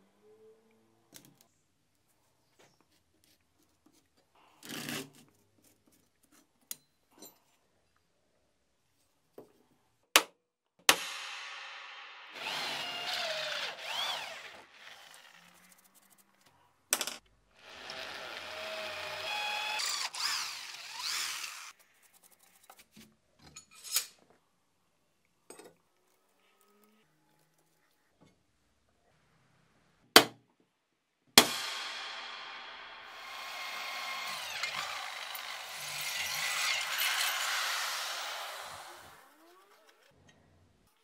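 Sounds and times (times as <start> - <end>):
electric drill boring into steel: 12.3 - 15.6, 17.6 - 21.7, 31.7 - 40.1.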